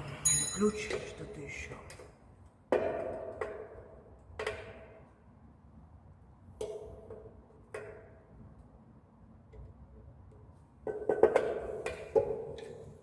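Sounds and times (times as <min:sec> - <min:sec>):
hand tool clinking on metal: 0:00.3 - 0:01.2.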